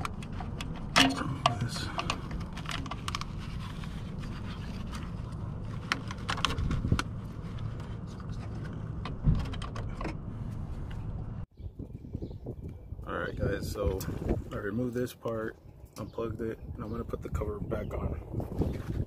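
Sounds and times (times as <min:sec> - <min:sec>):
plastic connector clicks and scrapes: 0:00.0 - 0:10.2
steady low rumble: 0:00.0 - 0:19.0.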